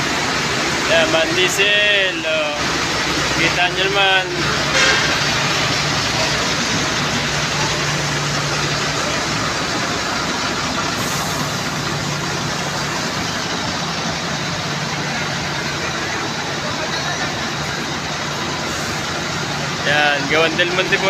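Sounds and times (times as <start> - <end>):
diesel bus engine idling: 0.0 - 21.0.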